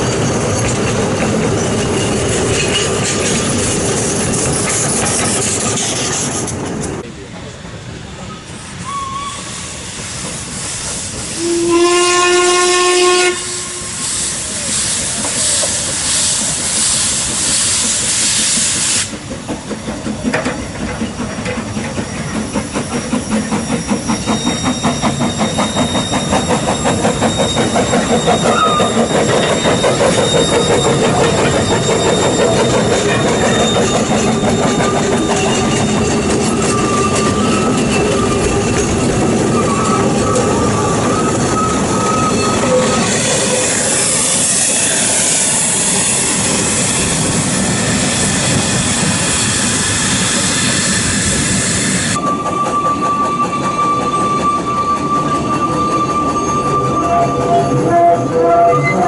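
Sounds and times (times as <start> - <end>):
rhythmic locomotive chuffing: 0.0 - 59.0
steam hissing: 7.9 - 57.6
steam locomotive whistle: 8.3 - 19.2, 22.8 - 59.0.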